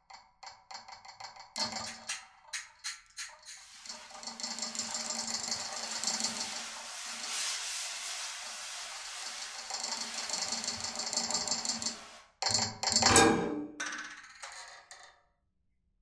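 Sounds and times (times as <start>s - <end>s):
high rattling scrape: 1.6s - 13.0s.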